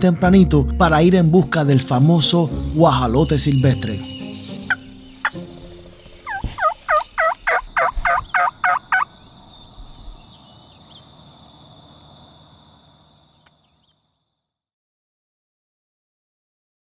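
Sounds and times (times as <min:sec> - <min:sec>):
wild turkey calling: 0:02.6 - 0:14.0.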